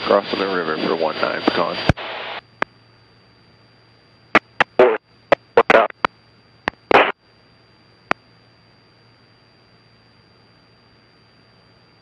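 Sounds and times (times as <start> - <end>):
radio hiss and hum: 0.0 - 2.8, 4.2 - 7.4
radio clicks and crackling bursts: 1.5 - 2.7, 4.4 - 6.1, 6.7 - 7.2.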